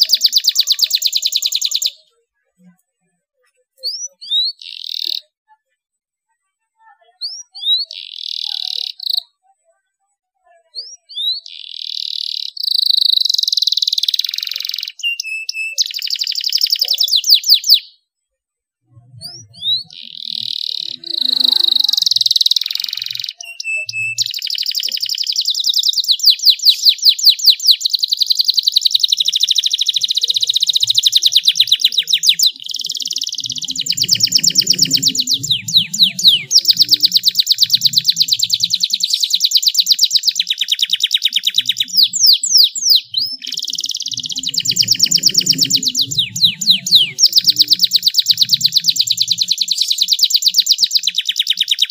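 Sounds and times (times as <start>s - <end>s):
canary singing: 0.0s - 2.1s, 3.8s - 5.3s, 7.2s - 9.4s, 10.7s - 18.0s, 19.0s - 51.9s.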